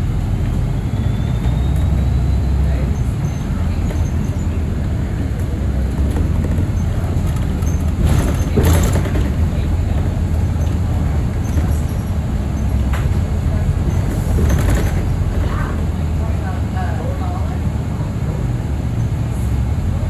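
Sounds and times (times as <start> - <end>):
bus engine and road rumble: 0.0 - 20.0.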